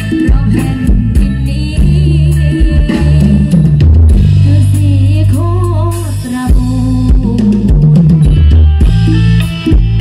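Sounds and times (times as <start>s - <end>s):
folk dance band playing: 0.0s - 5.1s, 6.1s - 10.0s
drum kit beat: 0.0s - 10.0s.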